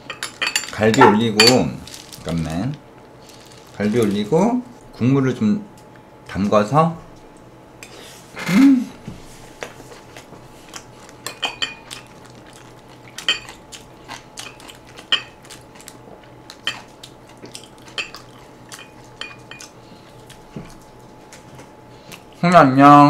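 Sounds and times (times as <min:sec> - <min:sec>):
metal spoon clinking on a bowl: 0:00.1 - 0:01.6.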